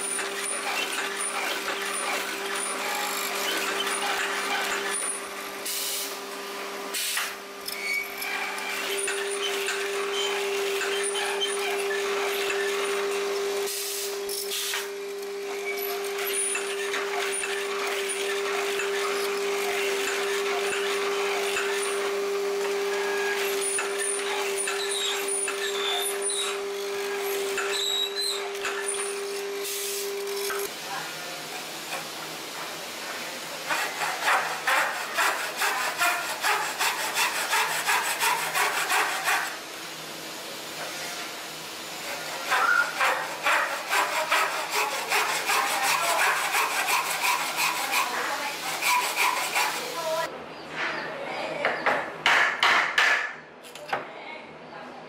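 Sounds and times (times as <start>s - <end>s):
chisel cutting wood: 0.0s - 5.3s, 7.7s - 13.6s, 15.0s - 29.6s, 33.6s - 39.6s, 42.0s - 50.3s, 51.9s - 53.3s
air hissing bursts: 6.9s - 7.4s, 13.7s - 14.9s.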